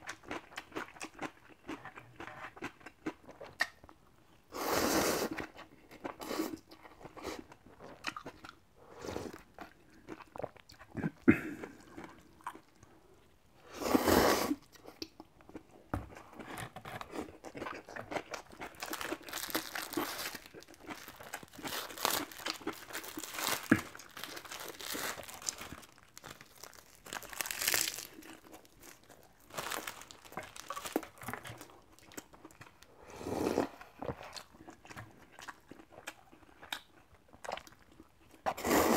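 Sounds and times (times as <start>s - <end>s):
slurping broth from bowl: 13.7s - 14.6s
slurping noodles: 13.7s - 14.6s, 33.0s - 33.8s, 38.5s - 38.9s
crunchy chewing: 14.6s - 33.0s
plastic wrapper crinkling: 18.6s - 31.7s.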